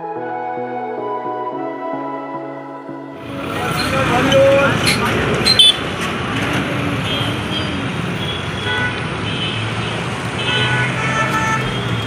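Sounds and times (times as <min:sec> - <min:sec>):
cars driving by: 0:03.2 - 0:12.0
car horn toots: 0:07.1 - 0:09.6, 0:10.4 - 0:12.0.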